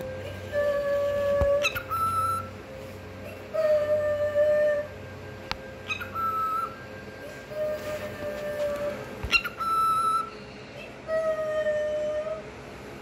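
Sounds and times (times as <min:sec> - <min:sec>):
cockatiel whistling: 0:00.0 - 0:02.6, 0:05.8 - 0:10.5.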